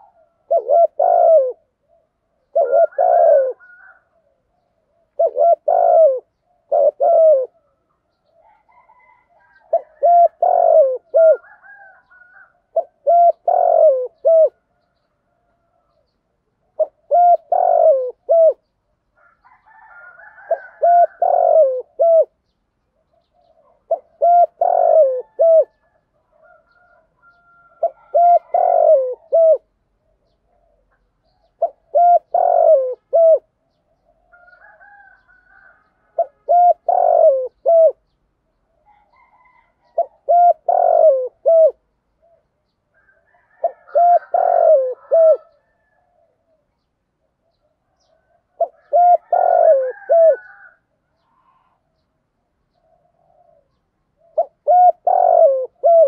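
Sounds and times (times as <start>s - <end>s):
dove cooing: 0.0s - 22.4s, 23.0s - 52.0s, 52.7s - 56.0s.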